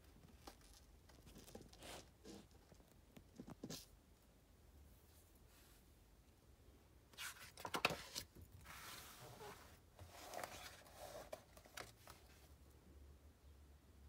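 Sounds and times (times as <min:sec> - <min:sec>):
page rustling and sliding: 0:07.2 - 0:12.5.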